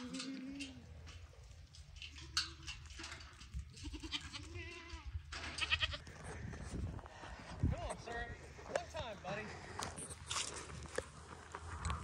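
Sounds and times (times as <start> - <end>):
goats bleating: 0.0 - 0.9, 3.7 - 6.2.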